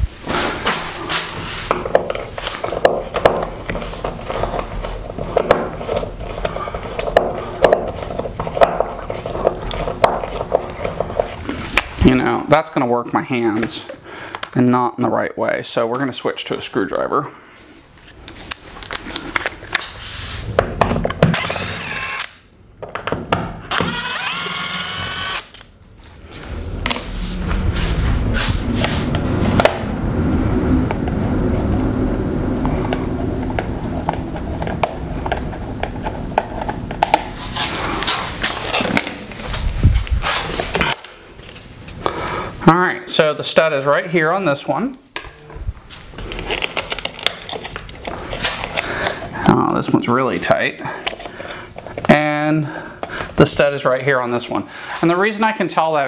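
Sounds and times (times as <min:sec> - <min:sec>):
cordless drill whirring: 0:21.2 - 0:22.4, 0:23.7 - 0:25.7
footsteps: 0:26.0 - 0:29.9.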